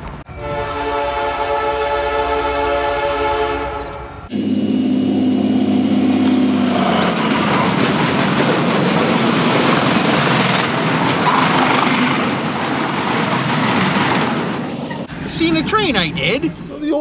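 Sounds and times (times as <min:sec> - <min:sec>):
freight train passing: 0:00.0 - 0:17.0
train horn: 0:00.3 - 0:07.9.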